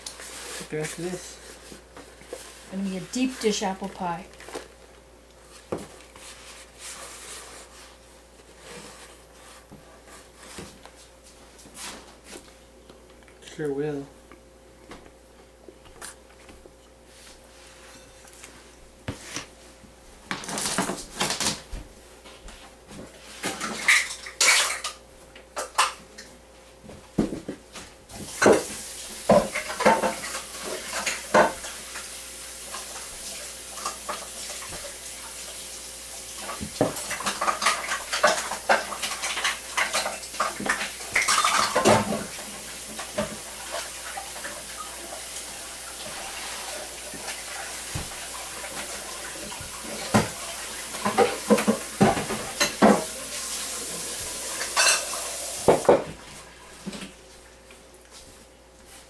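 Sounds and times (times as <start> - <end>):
tap water running: 28.1 - 56.2
utensils and dishes clinking: 54.6 - 55.3.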